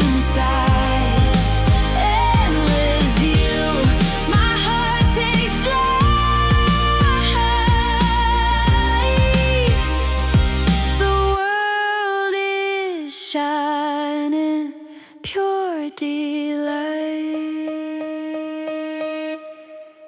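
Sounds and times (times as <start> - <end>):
woman singing wordless notes: 0.0 - 9.9, 11.0 - 20.0
soft music backing: 0.0 - 11.7.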